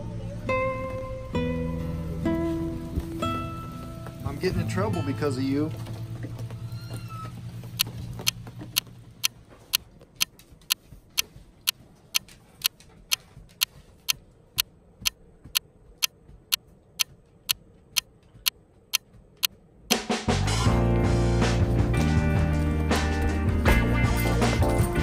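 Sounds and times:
low background music: 20.1 - 25.0.

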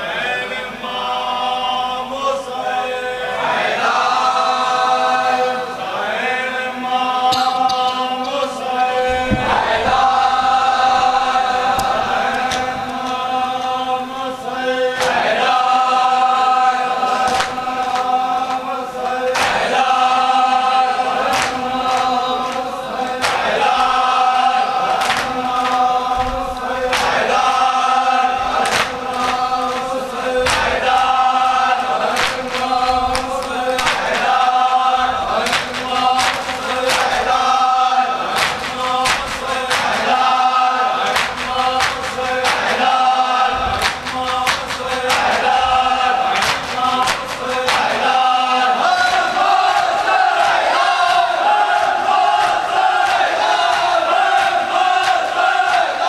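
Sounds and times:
men chanting together: 0.0 - 56.0
hands slapping chests: 28.5 - 31.2, 35.3 - 37.5, 38.3 - 40.3, 41.0 - 43.0, 43.6 - 48.2.

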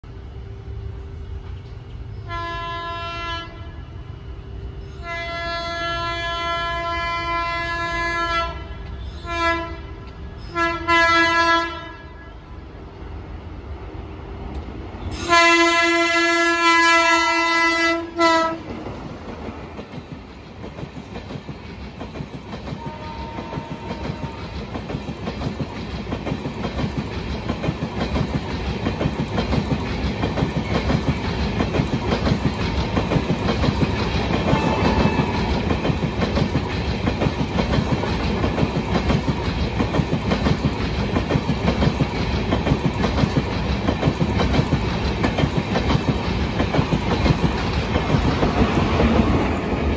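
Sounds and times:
train horn blast: 2.2 - 4.1, 4.9 - 12.6, 15.1 - 18.8, 22.7 - 24.6, 34.4 - 35.8
train wheels clattering over rails: 17.9 - 49.9.

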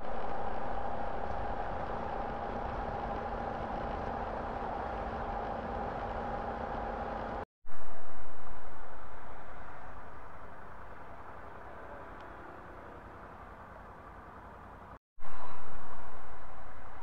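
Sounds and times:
motorcycle engine running: 0.0 - 7.4.

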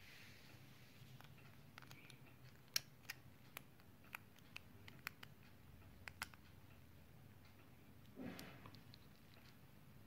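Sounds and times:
quiet room hum: 0.0 - 10.0.

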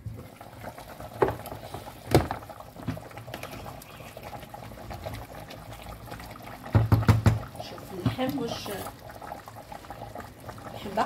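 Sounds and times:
broth boiling in a pot: 0.0 - 11.0.

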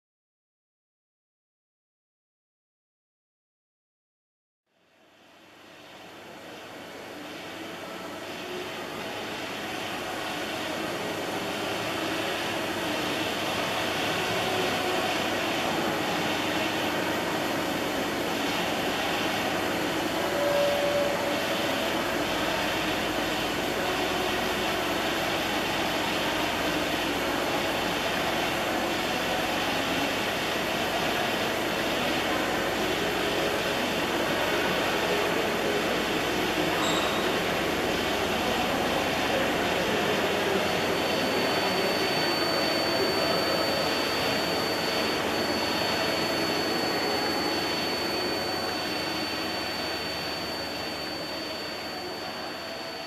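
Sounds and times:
milling machine whirring: 8.3 - 53.0
short tone: 19.0 - 23.0, 33.1 - 53.0.

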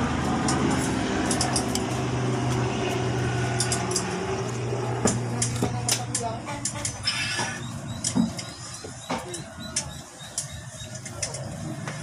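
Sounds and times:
low engine hum: 0.0 - 12.0
metallic clicks and taps: 0.4 - 1.9, 3.5 - 4.2, 5.0 - 7.0, 9.3 - 11.5.

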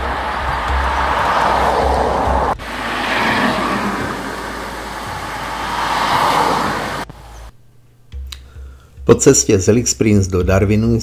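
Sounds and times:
car wind and tyre noise: 0.0 - 7.5
vehicles passing: 0.0 - 7.5.

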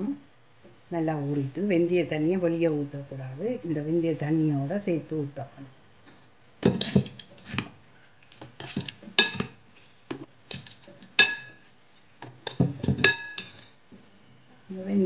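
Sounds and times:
metal spoon clinking on bowl: 9.2 - 9.5, 12.5 - 13.7.

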